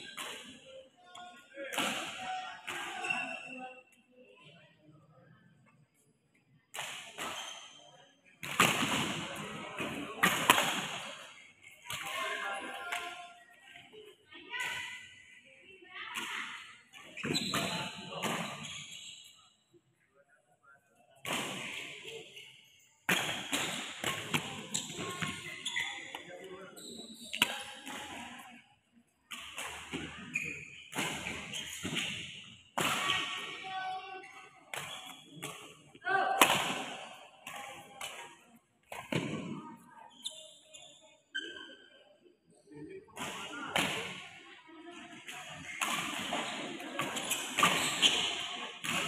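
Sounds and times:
shoes squeaking on court: 17.0s - 19.5s, 21.8s - 28.1s, 29.8s - 32.5s, 34.7s - 35.5s, 40.1s - 41.9s, 45.6s - 48.6s
rackets hitting shuttlecock: 45.6s - 49.0s.

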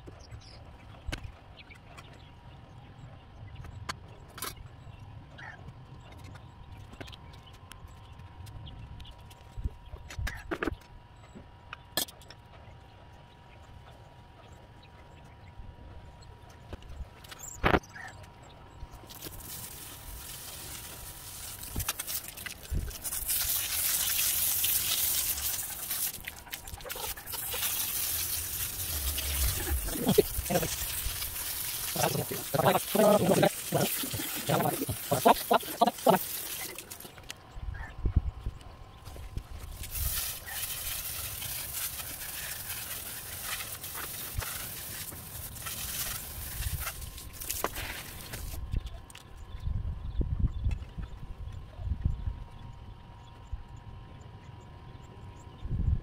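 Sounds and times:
water jet spraying: 19.1s - 37.1s, 39.7s - 48.6s.

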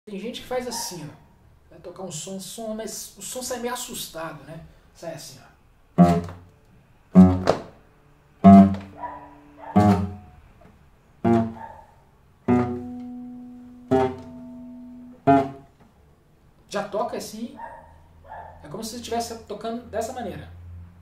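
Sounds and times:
classical guitar chords plucked: 6.0s - 6.5s, 7.1s - 7.8s, 8.4s - 9.0s, 9.8s - 10.4s, 11.2s - 11.6s, 12.4s - 15.8s.

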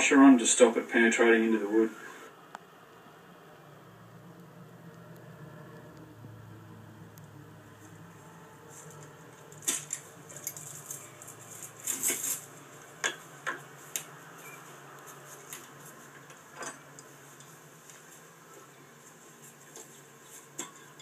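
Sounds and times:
low hum: 1.9s - 13.0s
metal tools and chain clinking: 8.9s - 12.6s.

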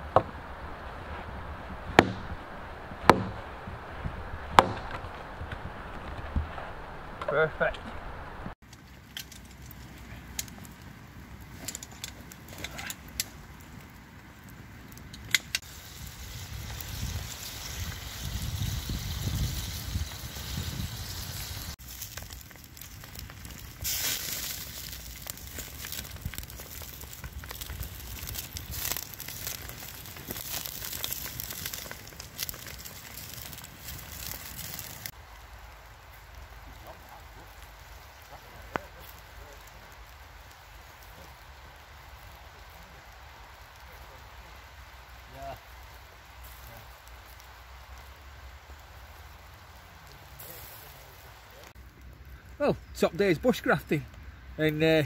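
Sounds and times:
campfire crackling and popping: 0.0s - 55.0s
bacon sizzling: 15.6s - 36.4s.

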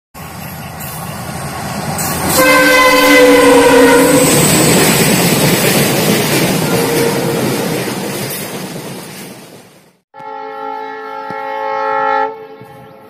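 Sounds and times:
locomotive horn blast: 2.2s - 4.4s, 6.6s - 7.4s, 10.1s - 13.0s.

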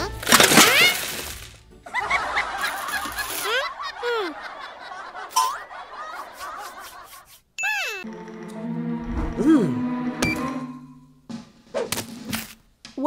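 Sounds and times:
high-pitched cartoon giggling: 1.9s - 8.1s.

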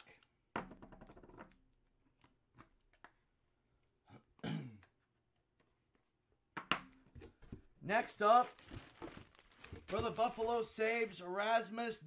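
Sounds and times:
crackling handling noise: 8.2s - 11.0s.

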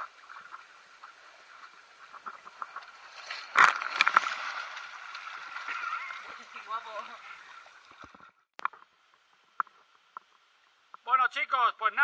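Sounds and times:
churning water: 0.0s - 8.5s.

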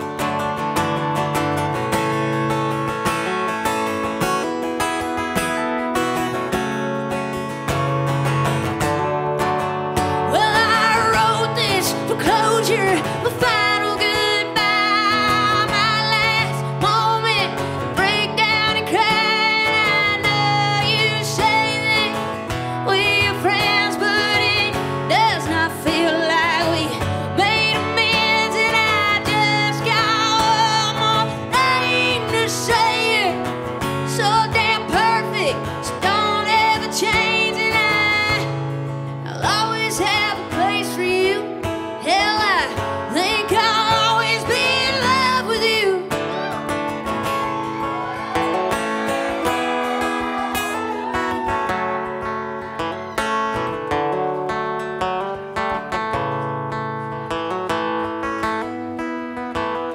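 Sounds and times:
country-rock band playing: 0.0s - 59.9s
strummed acoustic guitar: 0.0s - 59.9s
woman singing: 10.0s - 53.3s.

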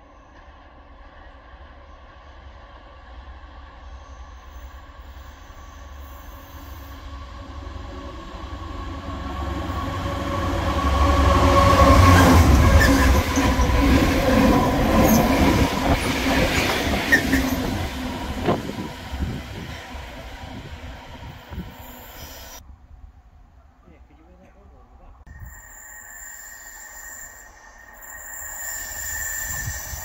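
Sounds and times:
diesel locomotive engines rumbling: 0.6s - 22.6s.

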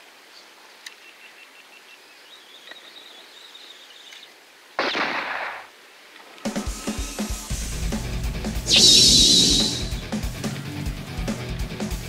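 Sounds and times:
faint high chirping: 8.7s - 10.1s
sudden loud rush of noise: 8.7s - 10.1s.

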